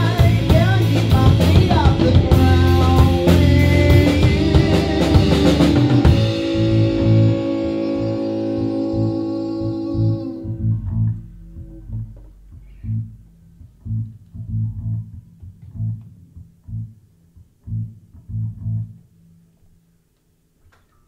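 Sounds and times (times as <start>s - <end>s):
full band chord: 0.0s - 13.2s
electric bass plucked low notes: 0.0s - 19.6s.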